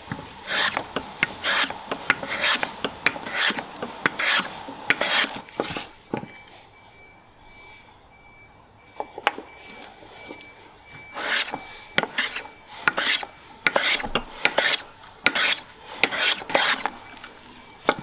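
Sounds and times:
hand plane rasping wood: 0:00.0 - 0:05.8, 0:11.1 - 0:17.0.

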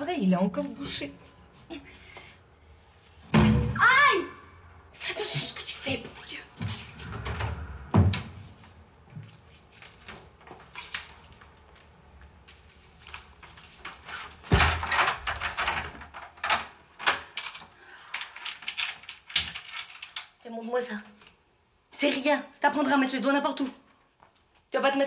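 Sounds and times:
door banging: 0:06.6 - 0:08.6.

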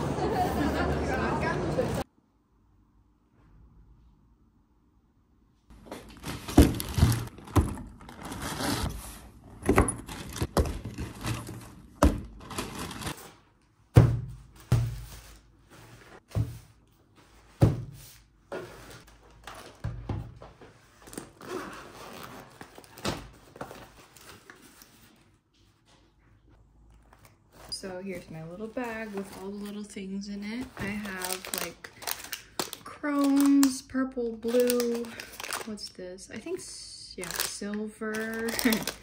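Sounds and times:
plastic packaging rustling: 0:05.8 - 0:13.4, 0:27.0 - 0:35.9, 0:37.1 - 0:39.0.

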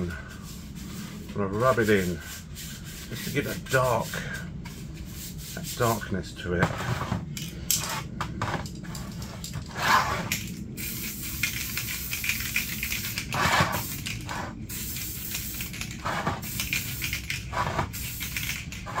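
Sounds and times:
aerosol spray can hissing: 0:10.7 - 0:19.0.

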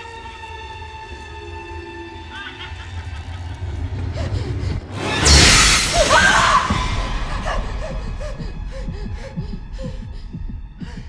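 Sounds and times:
shriek: 0:05.0 - 0:07.2.

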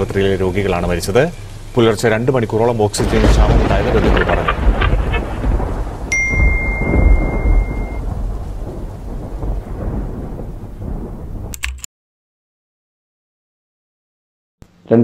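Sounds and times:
rain: 0:00.0 - 0:11.6
rumbling thunder: 0:03.0 - 0:11.5
high electronic beep: 0:06.1 - 0:08.0.

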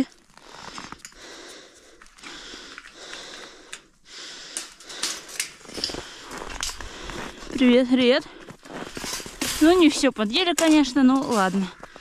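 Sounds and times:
person breathing and sniffing: 0:00.4 - 0:07.6
faint irregular clicks: 0:00.7 - 0:07.2.

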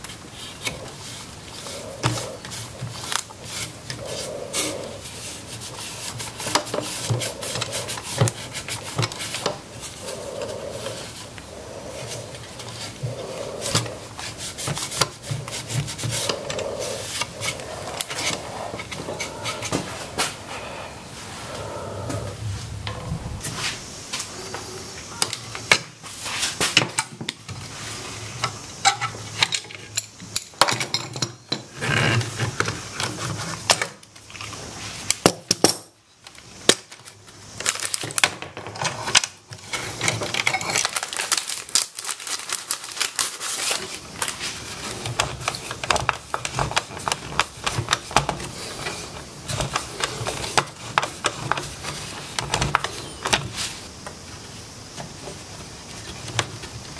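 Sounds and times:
rubbing or scraping: 0:00.0 - 0:25.2.

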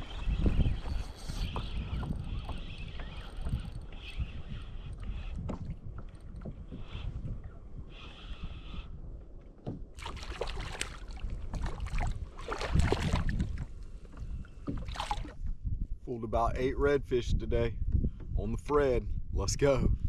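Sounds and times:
fish splashing in water: 0:10.0 - 0:13.4, 0:14.7 - 0:15.4.

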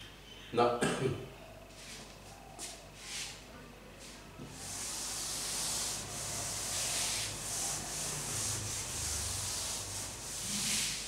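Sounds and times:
eraser rubbing chalkboard: 0:04.4 - 0:11.0.

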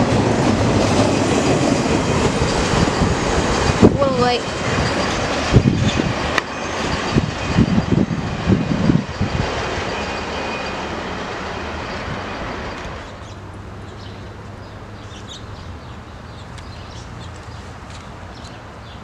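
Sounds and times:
freight train rolling on rails: 0:00.0 - 0:19.0.

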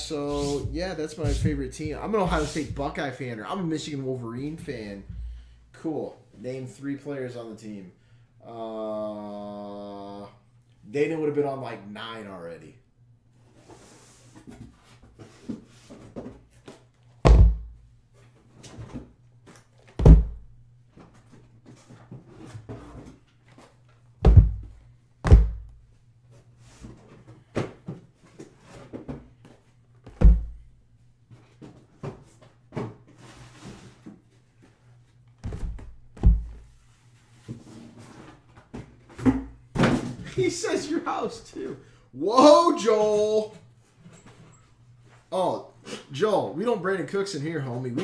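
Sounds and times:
boxes thunking on padded table: 0:17.2 - 0:17.8, 0:24.2 - 0:25.7, 0:35.4 - 0:36.7.

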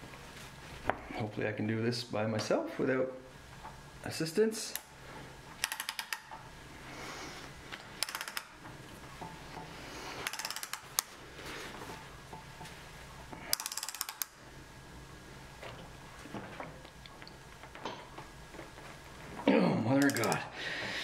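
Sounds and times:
torque wrench ratchet clicking: 0:05.6 - 0:06.3, 0:08.0 - 0:08.5, 0:10.2 - 0:11.0, 0:13.5 - 0:14.4, 0:20.0 - 0:20.4.

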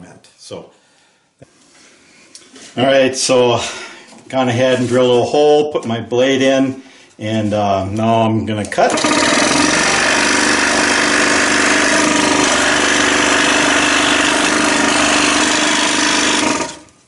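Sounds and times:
scroll saw buzzing: 0:08.9 - 0:17.0.

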